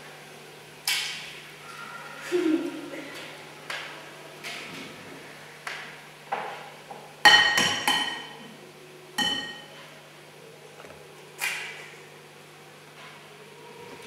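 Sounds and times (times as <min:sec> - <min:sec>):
plate ringing: 0:09.2 - 0:09.8.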